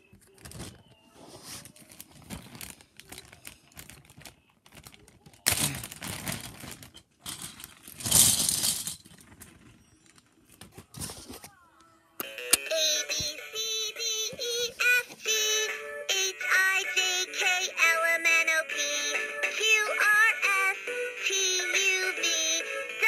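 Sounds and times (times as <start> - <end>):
rustling and crinkling handling: 0.0 - 11.7.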